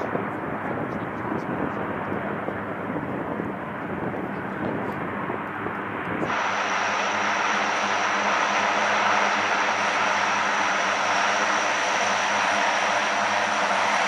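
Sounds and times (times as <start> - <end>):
turboprop engines running: 0.0 - 14.0.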